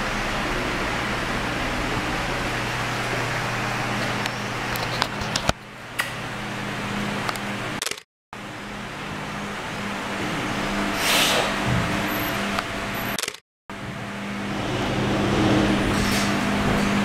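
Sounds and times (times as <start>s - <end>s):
machine hum: 0.0s - 7.8s, 11.6s - 17.0s
sharp clicks: 7.8s - 8.0s, 13.2s - 13.4s.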